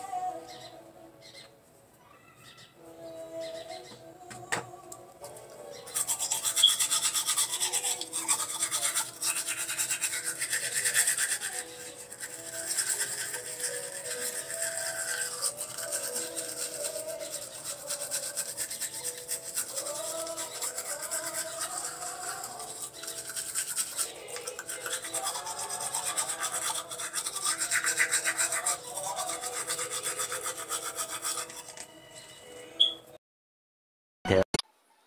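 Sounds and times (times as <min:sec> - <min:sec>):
toothbrush scrubbing teeth: 0:05.8 - 0:31.9.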